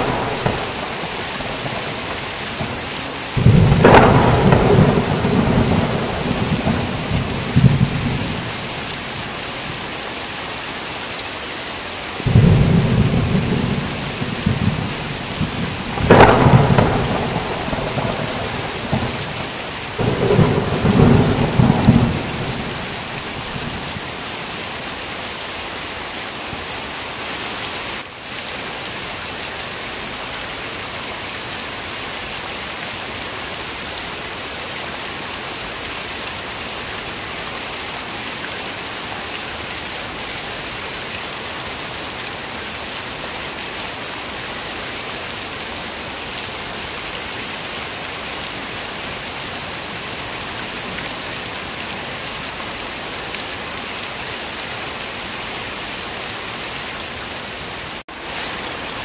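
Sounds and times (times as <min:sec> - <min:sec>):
rolling thunder: 0:00.0 - 0:08.8, 0:12.3 - 0:24.2
heavy rain falling: 0:00.0 - 0:59.0.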